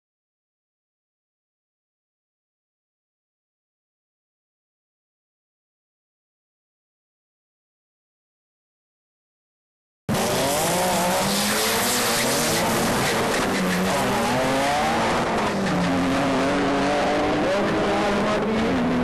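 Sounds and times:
drag cars racing: 10.1s - 19.0s.

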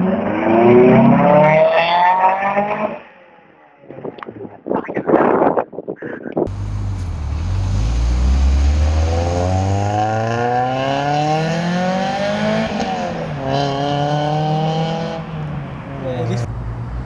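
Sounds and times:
car engine accelerating: 6.5s - 17.0s.

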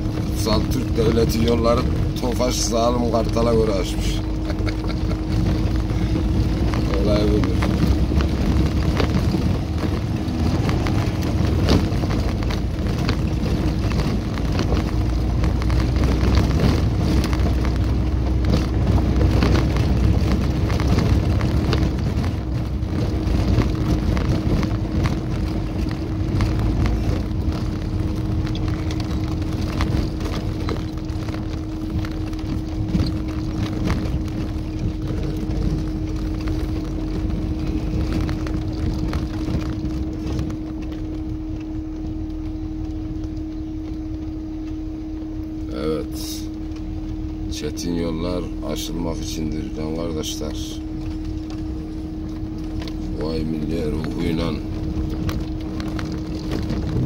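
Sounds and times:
car body knocking and rattling: 0.0s - 45.3s
car engine humming: 0.0s - 57.0s
low road rumble: 0.0s - 57.0s.

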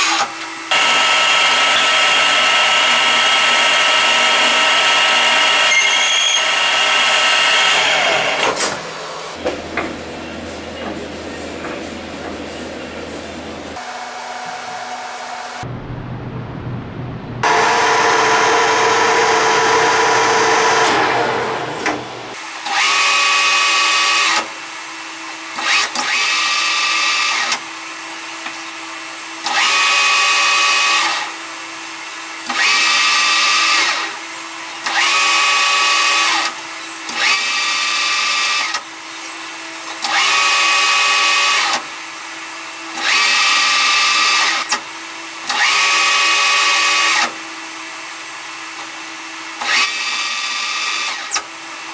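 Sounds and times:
cutting whine: 0.0s - 9.9s, 15.5s - 22.4s
lathe cutting metal: 0.7s - 9.3s, 17.4s - 24.4s
motor hum: 15.6s - 22.4s.

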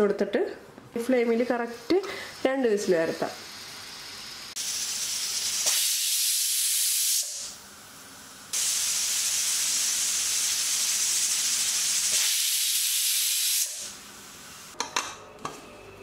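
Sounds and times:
pressure cooker steam hissing: 2.0s - 14.8s.

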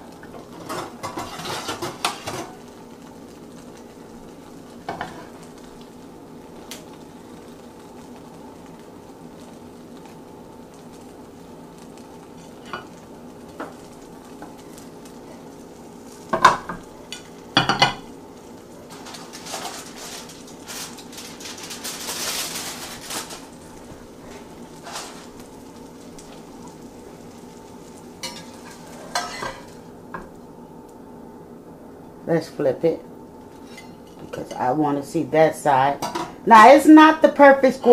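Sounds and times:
frying pan sizzling: 0.0s - 37.9s
aluminium foil crinkling: 0.3s - 29.9s
spatula scraping in pan: 0.4s - 2.6s, 4.9s - 5.5s, 18.9s - 25.5s, 27.9s - 29.9s, 33.5s - 34.6s.

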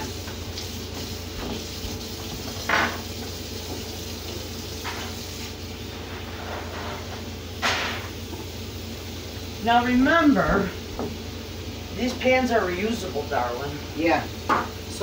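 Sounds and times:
pans and cupboards clattering: 2.3s - 3.1s.

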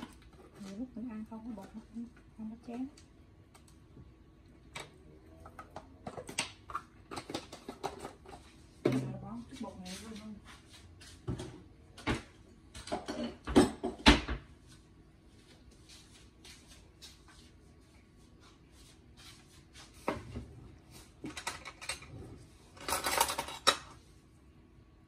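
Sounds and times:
dishes and spoons clattering: 12.8s - 14.3s, 22.8s - 24.0s.

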